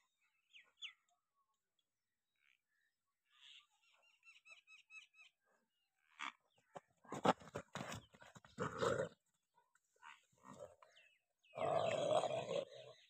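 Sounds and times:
dog growling and snarling: 8.5s - 9.2s, 11.6s - 12.9s.

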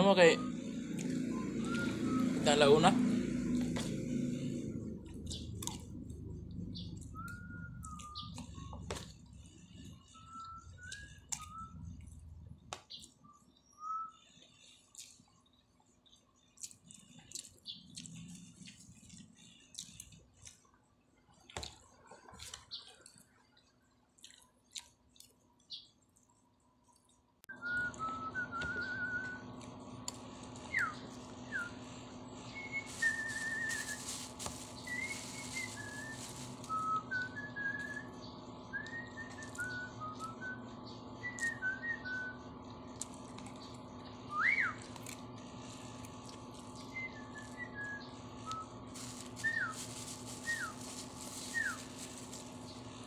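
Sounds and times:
whistled chirps and warbles: 0.0s - 3.0s, 6.2s - 12.3s, 12.9s - 15.2s, 27.5s - 29.6s, 30.6s - 34.2s, 34.8s - 42.6s, 44.0s - 45.0s, 46.8s - 51.9s
steady low hum: 0.0s - 21.2s, 26.3s - 53.0s.

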